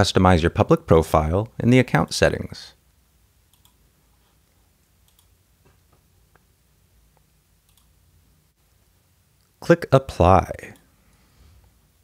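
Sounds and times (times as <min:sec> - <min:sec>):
computer mouse clicks: 0:03.5 - 0:03.8, 0:05.0 - 0:05.4, 0:07.6 - 0:07.9.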